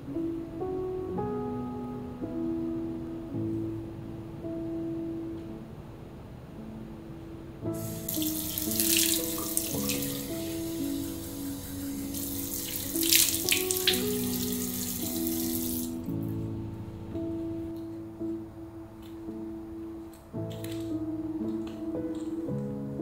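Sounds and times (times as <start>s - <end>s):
soft instrumental music: 0.0s - 23.0s
water splashing on hands: 8.1s - 10.7s, 12.1s - 15.9s.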